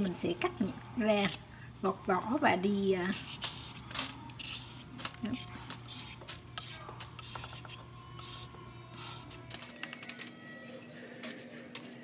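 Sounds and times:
peeler scraping a carrot: 0:03.1 - 0:09.5.

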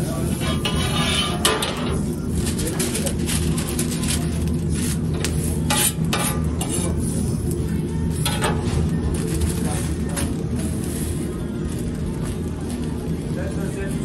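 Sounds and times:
food sizzling on griddle: 0:00.0 - 0:14.0
steady low hum: 0:00.0 - 0:14.0
knife scraping metal griddle: 0:00.2 - 0:02.0, 0:05.6 - 0:07.2.

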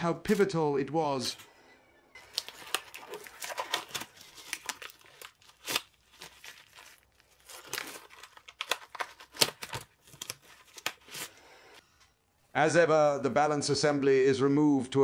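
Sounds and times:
rubber gloves crinkling and snapping: 0:02.2 - 0:11.8.

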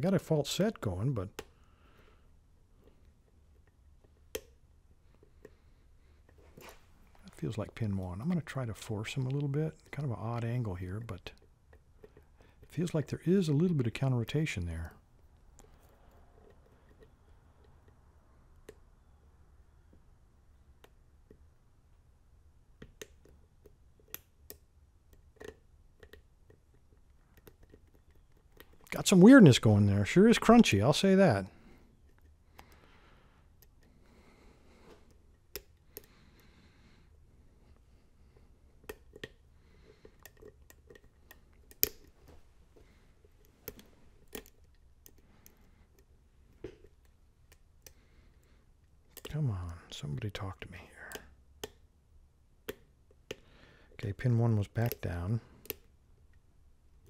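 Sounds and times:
faint clicks of lock picking: 0:02.8 - 0:18.0, 0:22.8 - 0:29.2, 0:31.4 - 0:51.9, 0:52.6 - 0:54.1, 0:54.7 - 0:56.5
lock pick clicks and scrapes: 0:38.8 - 0:42.2, 0:42.8 - 0:48.0.

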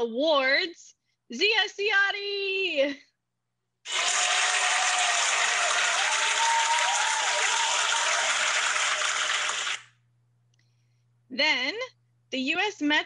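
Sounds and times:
whoops: 0:03.9 - 0:09.8
crowd applause: 0:03.9 - 0:09.9.

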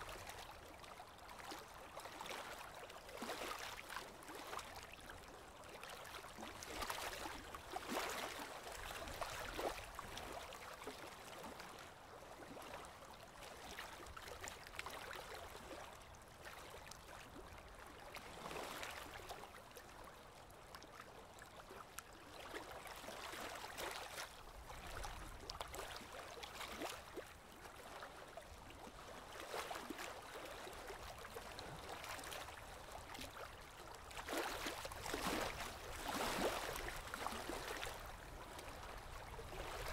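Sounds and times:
small clicks and splashes: 0:20.7 - 0:28.3.

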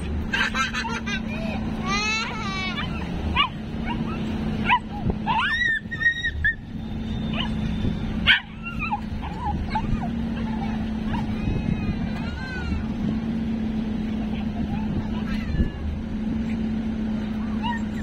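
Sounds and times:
dog yips and whines: 0:02.7 - 0:12.8, 0:17.4 - 0:18.0.

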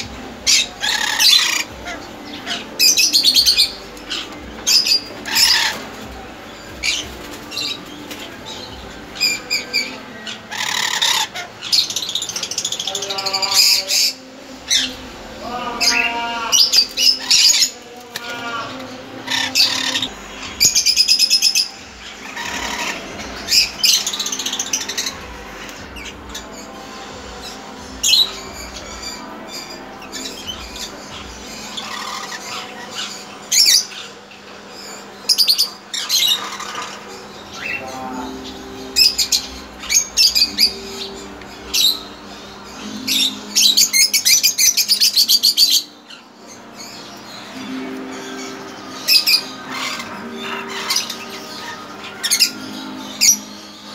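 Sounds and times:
parrots chirping and screeching: 0:00.0 - 0:53.9.

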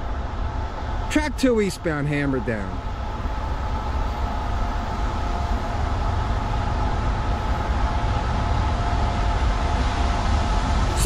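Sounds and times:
freight train rumble: 0:00.0 - 0:11.0.

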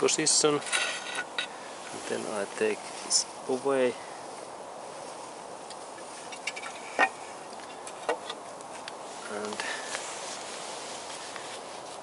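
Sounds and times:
background hiss: 0:00.0 - 0:12.0
metal engine parts clinking: 0:00.6 - 0:01.5, 0:06.3 - 0:08.4.

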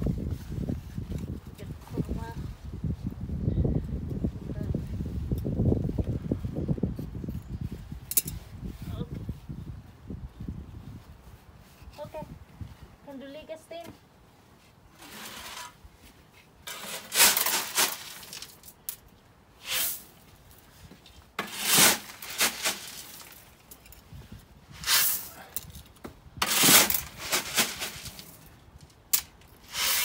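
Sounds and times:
gravel rattling and rustling: 0:14.9 - 0:19.1, 0:20.2 - 0:29.7.

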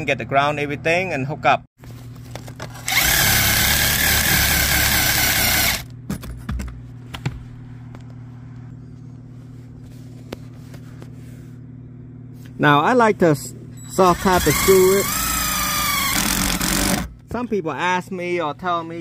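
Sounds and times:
steady low hum: 0:00.0 - 0:19.0
cordless drill driving screw: 0:02.8 - 0:05.8, 0:14.2 - 0:17.1.

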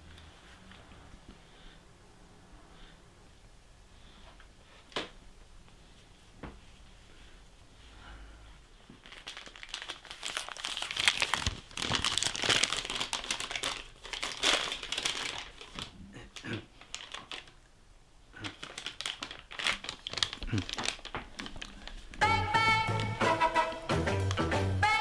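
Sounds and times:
paper crinkling: 0:08.9 - 0:17.6, 0:18.4 - 0:22.2.

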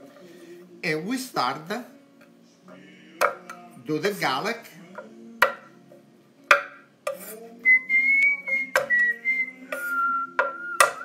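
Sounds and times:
knife chopping on wooden board: 0:03.2 - 0:03.6, 0:05.0 - 0:05.7, 0:06.5 - 0:07.3, 0:08.8 - 0:09.1, 0:09.7 - 0:11.0
person whistling: 0:07.6 - 0:11.0.

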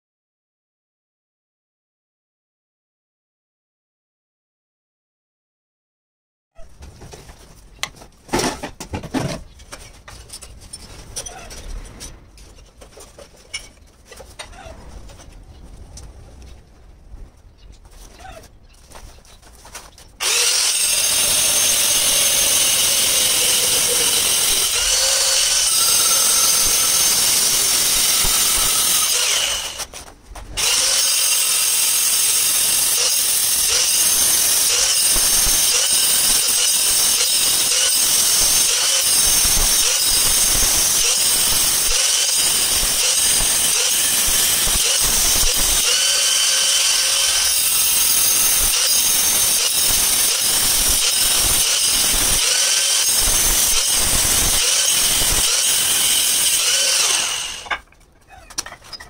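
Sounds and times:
angle grinder cutting stone tile: 0:20.2 - 0:29.9, 0:30.6 - 0:57.8.

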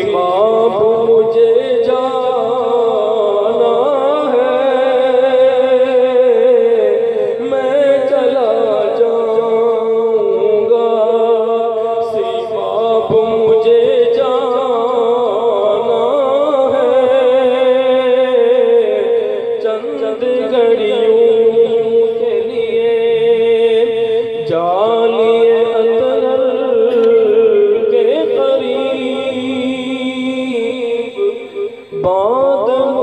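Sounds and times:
person singing devotional song: 0:00.0 - 0:33.0
steady drone: 0:15.2 - 0:33.0.

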